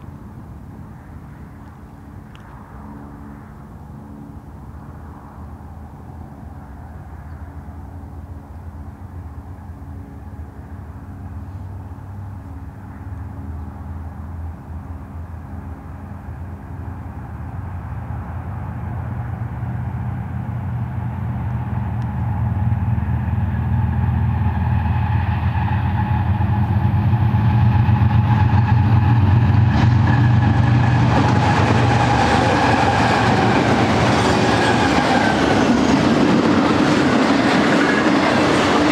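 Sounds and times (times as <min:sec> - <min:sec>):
diesel locomotive engine drone: 0:00.0 - 0:38.9
steel wheels clattering on rails: 0:25.5 - 0:38.9.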